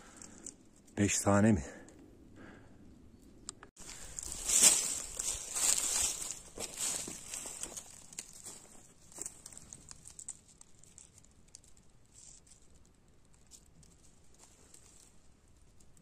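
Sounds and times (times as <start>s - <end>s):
rustling of dry leaves and twigs: 3.8s - 16.0s.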